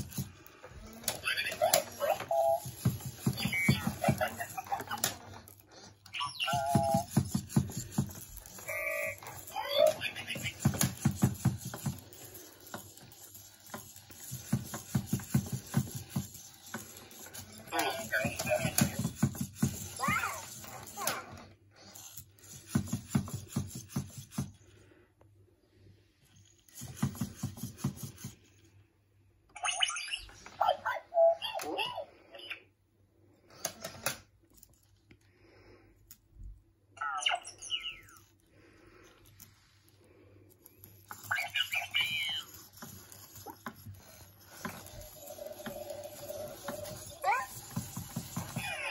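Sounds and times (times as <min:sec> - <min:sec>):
toy robot noisy bursts: 0:00.0 - 0:05.2, 0:06.1 - 0:23.9, 0:41.1 - 0:48.9
toy robot chirping bleeps: 0:01.1 - 0:05.2, 0:06.1 - 0:11.0, 0:16.0 - 0:19.0, 0:29.6 - 0:32.0, 0:37.0 - 0:38.3, 0:41.1 - 0:48.9.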